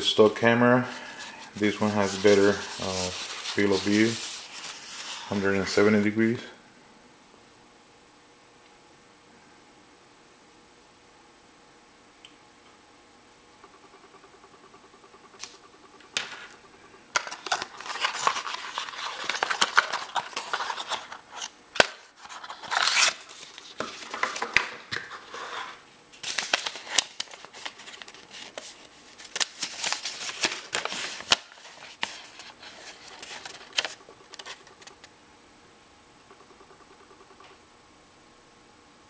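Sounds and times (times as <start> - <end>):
paper rustling and crinkling: 0.9 - 6.2, 17.2 - 35.1.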